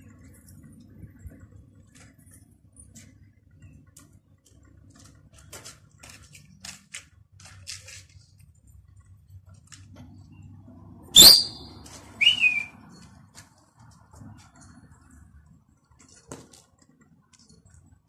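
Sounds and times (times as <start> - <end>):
person whistling sharply: 11.2 - 12.7.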